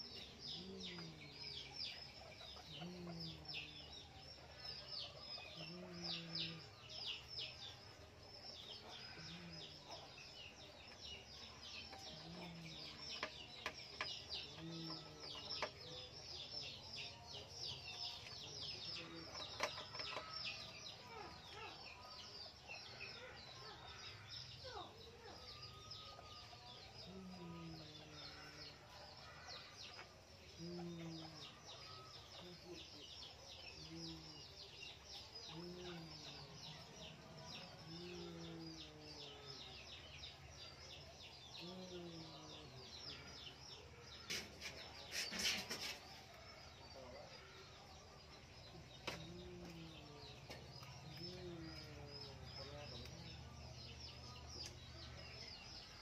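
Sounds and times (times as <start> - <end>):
small birds chirping: 0.0 - 56.0.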